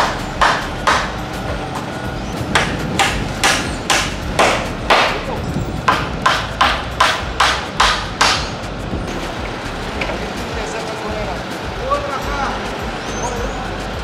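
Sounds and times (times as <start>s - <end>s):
hammer driving nails into wood: 0.0s - 1.2s, 2.6s - 5.2s, 5.9s - 8.5s.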